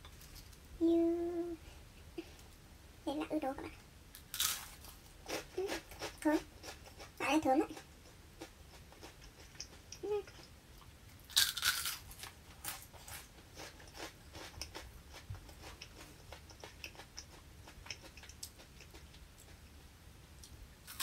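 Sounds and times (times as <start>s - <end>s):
person chewing crunchy food: 4.3s - 10.5s, 11.2s - 19.6s.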